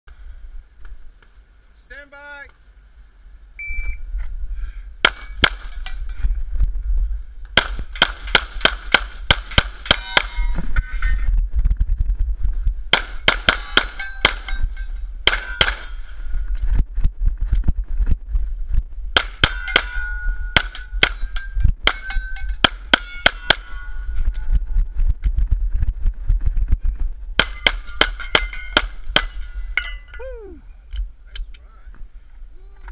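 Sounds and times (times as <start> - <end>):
bullets hitting steel plate: 5.0 - 6.2, 7.6 - 11.0, 12.9 - 16.1, 19.2 - 24.1, 27.4 - 30.3
pistol firing: 7.6 - 10.1, 12.9 - 14.6, 15.2 - 16.0, 19.2 - 20.0.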